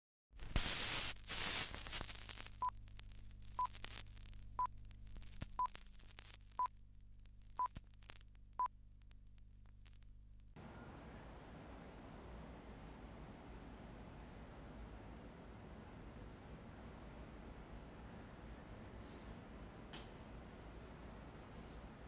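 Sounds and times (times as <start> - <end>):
crackling static: 0.3 - 10.6
pops and crackle: 0.4 - 10.6.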